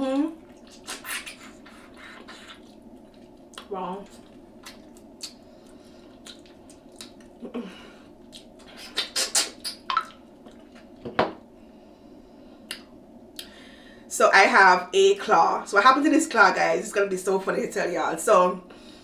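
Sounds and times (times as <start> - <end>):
mouth clicks and wet smacks chewing: 0.5 - 7.4, 8.2 - 10.9.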